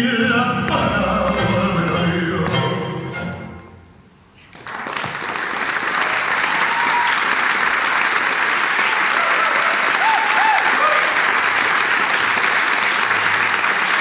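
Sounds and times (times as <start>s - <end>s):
tango song recording: 0.0s - 4.0s
audience applauding: 4.5s - 14.0s.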